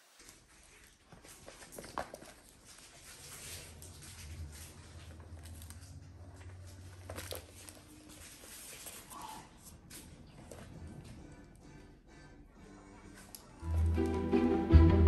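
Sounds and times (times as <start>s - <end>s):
puppy paws pattering on floor: 0.0s - 11.2s.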